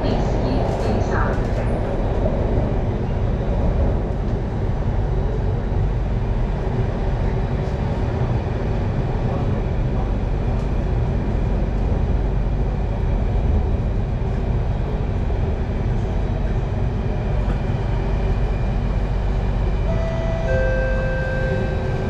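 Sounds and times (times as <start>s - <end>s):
train rumbling and rolling: 0.0s - 22.0s
steady tone: 19.8s - 22.0s.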